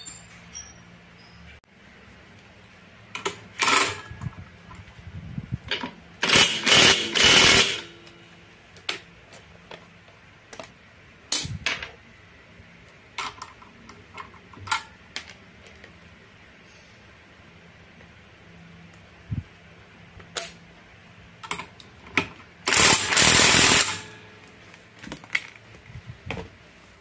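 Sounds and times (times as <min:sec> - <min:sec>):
metal tools clinking: 0:00.0 - 0:01.5
impact wrench bursts: 0:03.6 - 0:04.1, 0:06.2 - 0:08.0, 0:22.6 - 0:24.2.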